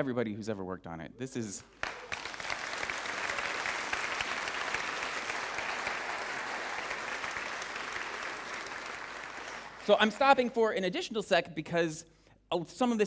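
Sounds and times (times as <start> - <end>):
crowd clapping: 1.6 - 10.5.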